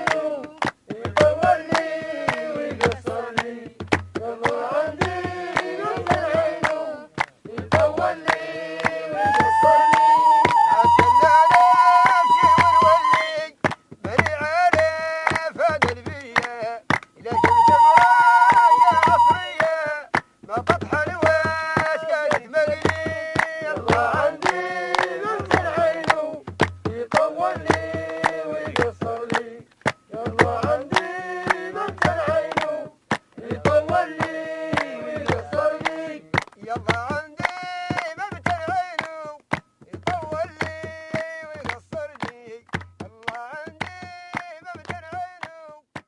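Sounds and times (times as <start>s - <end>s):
person singing: 5.6s - 13.6s, 15.6s - 26.3s
sharp percussive clicks: 19.0s - 46.0s.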